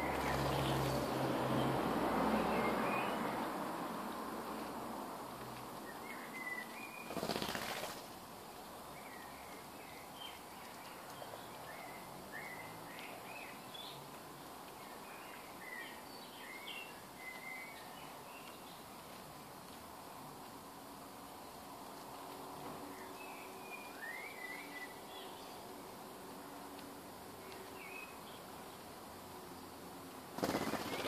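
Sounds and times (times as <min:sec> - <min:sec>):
starlings chirping: 0:00.0 - 0:03.3, 0:05.8 - 0:08.0, 0:22.9 - 0:25.7, 0:27.4 - 0:28.9, 0:30.4 - 0:31.0
bird wingbeats: 0:07.0 - 0:08.2, 0:30.2 - 0:31.0.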